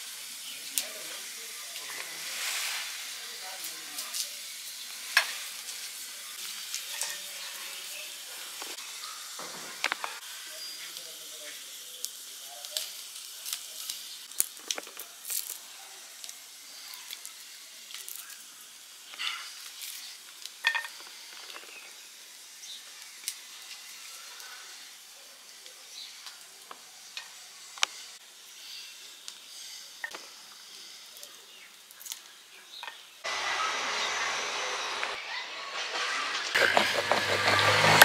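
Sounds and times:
faint hiss: 0.0 - 35.4
garlic skins crackling: 12.0 - 28.2, 30.3 - 32.4.

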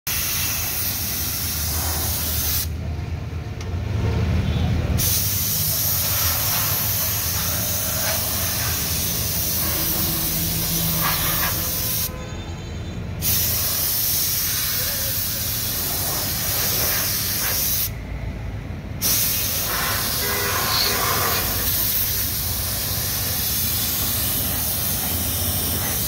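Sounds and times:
pressurised spray hissing: 0.1 - 2.8, 5.0 - 12.1, 13.2 - 18.0, 19.0 - 26.0.

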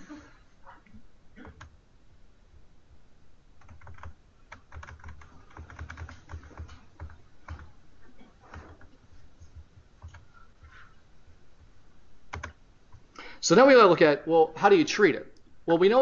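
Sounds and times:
computer keys clicking: 3.6 - 7.8, 10.0 - 10.3, 12.3 - 13.0.

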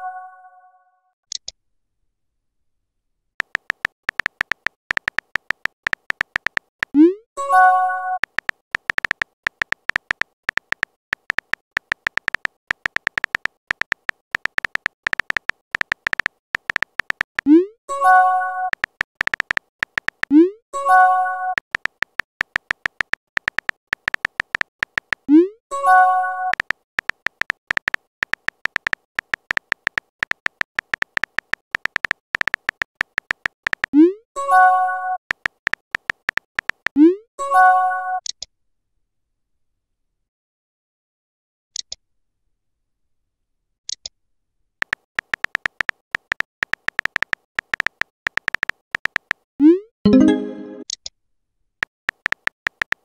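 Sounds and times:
phone keyboard typing clicks: 3.4 - 7.0, 8.2 - 17.6, 18.7 - 20.4, 21.6 - 25.4, 26.5 - 34.0, 35.3 - 37.0, 44.8 - 49.5, 51.8 - 53.0
message sent chime: 50.1 - 50.8.

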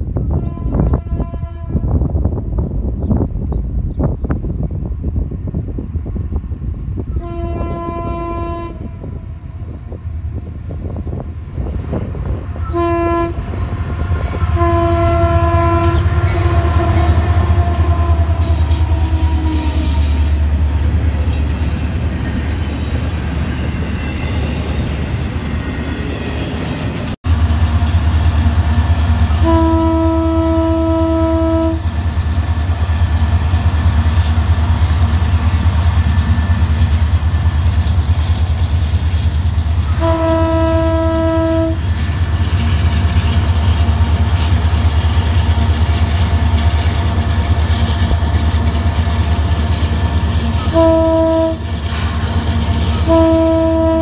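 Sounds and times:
rumble of freight train: 0.0 - 54.0
locomotive horn blasts: 0.2 - 2.0, 7.1 - 9.3, 12.6 - 20.4, 29.3 - 32.0, 39.8 - 41.9, 50.6 - 51.7, 52.9 - 54.0.

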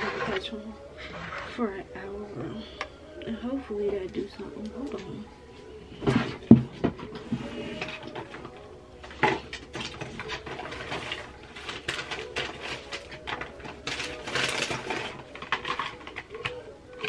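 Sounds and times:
faint steady hum: 0.0 - 17.0
small items clicking and rustling: 6.0 - 17.0.

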